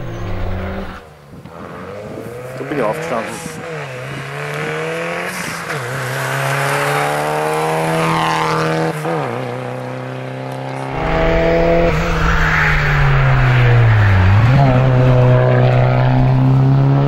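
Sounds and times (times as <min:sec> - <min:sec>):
rally car engines revving: 0:00.0 - 0:17.0
deep rumble: 0:10.9 - 0:16.5.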